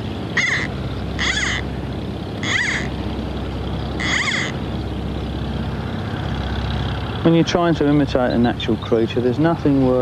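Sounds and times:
bird calling: 0.0 - 5.0
pump droning: 0.0 - 10.0.

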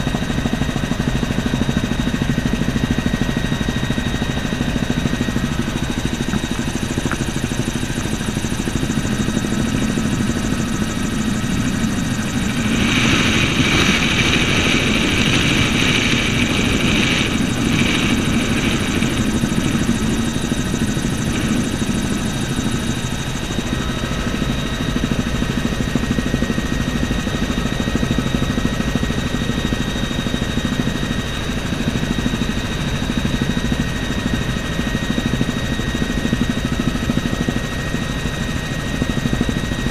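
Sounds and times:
helicopter engine and rotor: 0.0 - 39.9.

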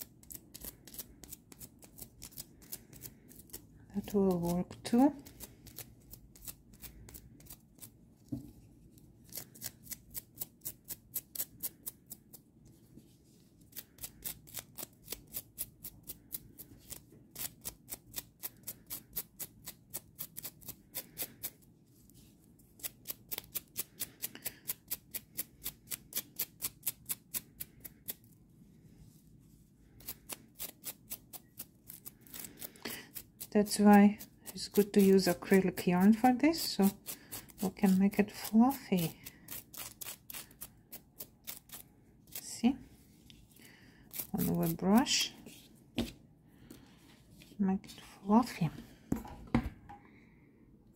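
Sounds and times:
brush scraping yarn: 28.8 - 46.1.

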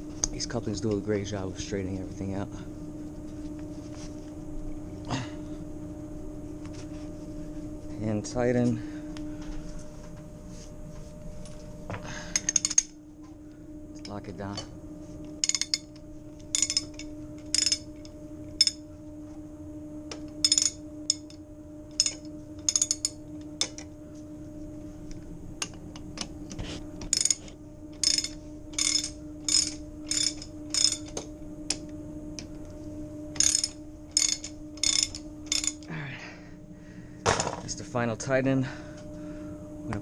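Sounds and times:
steady low hum: 0.0 - 40.0
socket ratchet wrench clicking: 28.0 - 31.2, 33.4 - 35.9.

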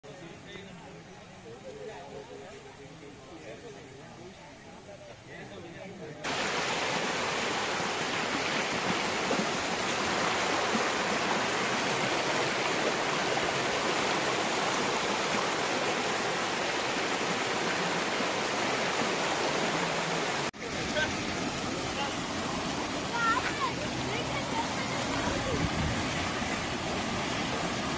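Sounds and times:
river water rushing: 6.2 - 27.9.

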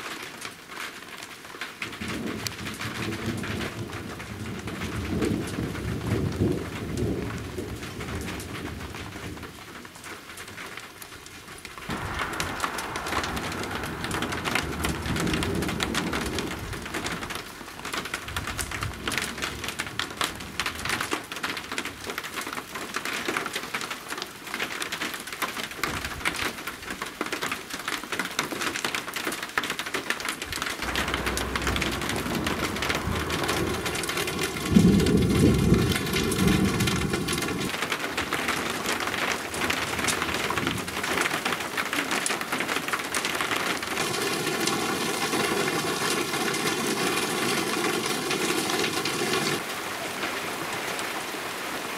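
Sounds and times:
heavy rain: 0.0 - 51.9
thunder rumbling: 1.9 - 9.5, 11.4 - 22.0, 30.5 - 37.9, 43.2 - 49.7.

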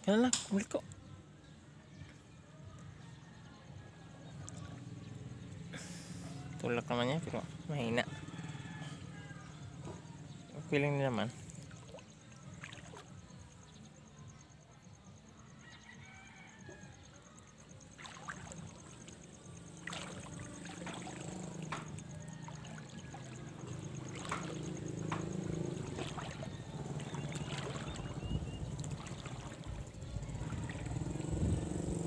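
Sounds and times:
water trickling and dripping: 17.9 - 31.8.

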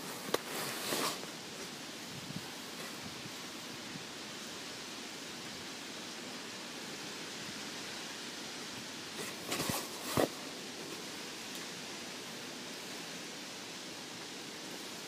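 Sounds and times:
outdoor background hiss: 0.0 - 15.0
rustling bumps: 9.1 - 11.1.

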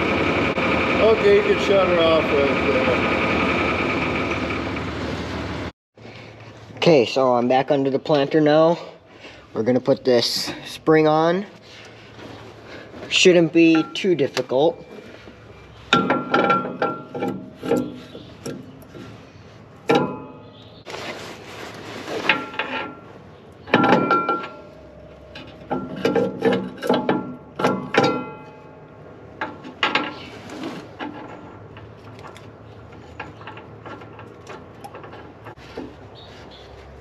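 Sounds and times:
metal clanking and rattling: 13.0 - 19.2, 19.8 - 20.6, 22.1 - 36.3.

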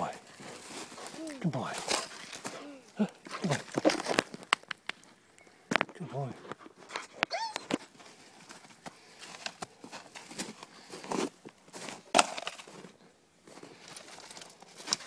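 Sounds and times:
twigs snapping: 3.2 - 5.1.

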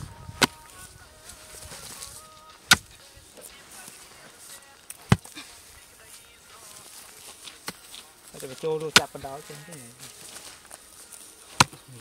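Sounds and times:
hoe striking hard soil: 2.7 - 3.0.

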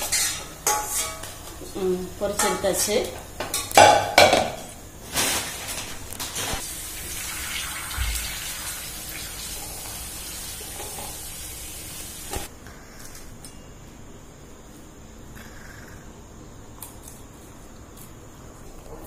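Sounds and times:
food sizzling in hot oil: 6.3 - 12.5.

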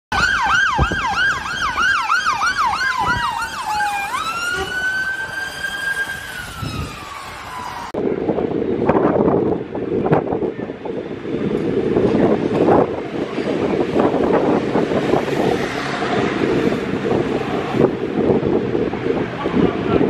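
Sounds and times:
fire engine siren: 0.1 - 8.1
street traffic noise: 0.1 - 20.0.

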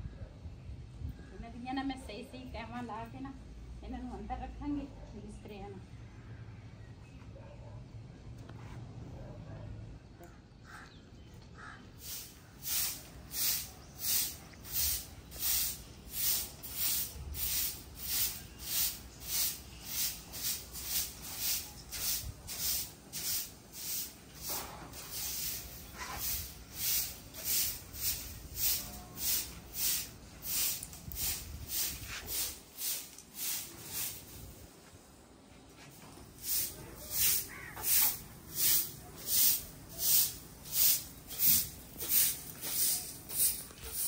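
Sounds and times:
broom sweeping concrete floor: 12.0 - 44.0.

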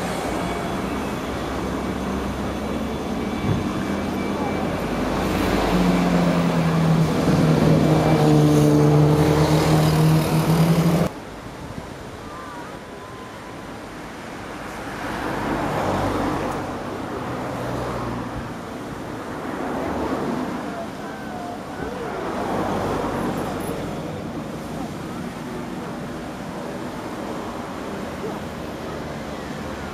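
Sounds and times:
distant aircraft engine drone: 0.0 - 11.1
helicopter flying low: 0.0 - 11.1.

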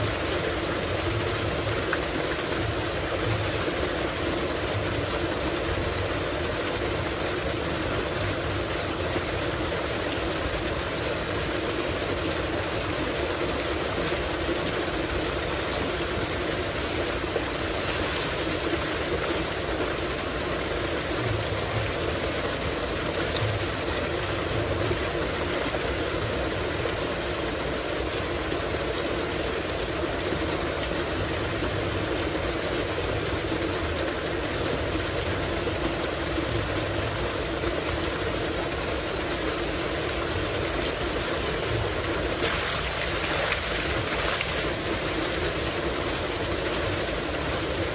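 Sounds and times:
pump droning: 0.0 - 47.9
water pouring into tank: 41.8 - 45.3.

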